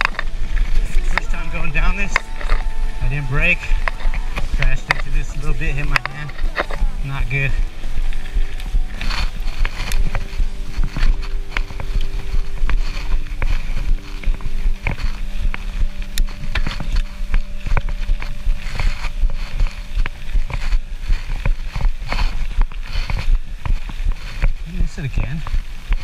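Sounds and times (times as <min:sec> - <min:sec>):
background hum: 0:00.0 - 0:26.0
bike rattling over bumps: 0:00.0 - 0:26.0
wind rumble on microphone: 0:00.0 - 0:26.0.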